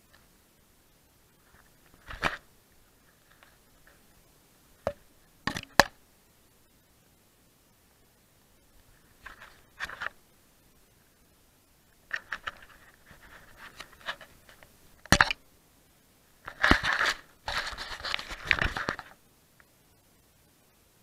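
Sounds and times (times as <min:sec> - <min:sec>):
camera handling rustling: 0:01.5 - 0:02.4, 0:09.2 - 0:10.2, 0:12.1 - 0:15.4, 0:16.5 - 0:19.2
camera scraping in grass: 0:09.1 - 0:10.2, 0:12.1 - 0:14.7, 0:16.4 - 0:19.2.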